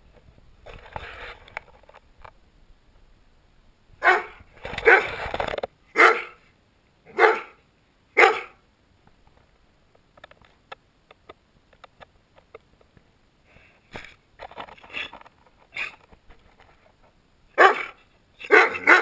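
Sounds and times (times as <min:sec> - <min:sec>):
dog barking: 0:04.0 - 0:05.1, 0:06.0 - 0:06.4, 0:07.1 - 0:07.6, 0:08.2 - 0:08.6, 0:17.6 - 0:19.0.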